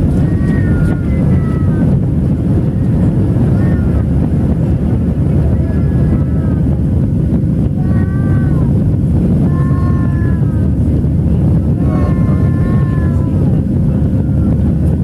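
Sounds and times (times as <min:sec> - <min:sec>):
jet engines deep rumble: 0:00.0 - 0:15.0.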